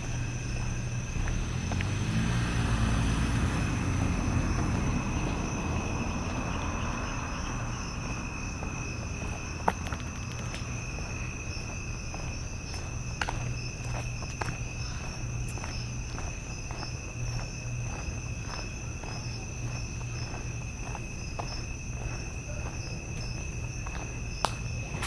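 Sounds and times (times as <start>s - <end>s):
crickets trilling: 0.0s - 25.0s
passing vehicle: 0.0s - 25.0s.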